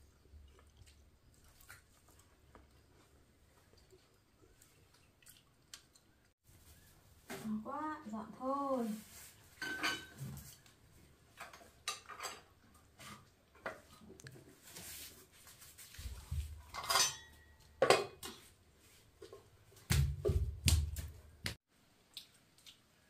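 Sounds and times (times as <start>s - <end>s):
dishes and cutlery clinking: 9.6s - 10.6s, 11.4s - 13.8s, 16.7s - 18.4s.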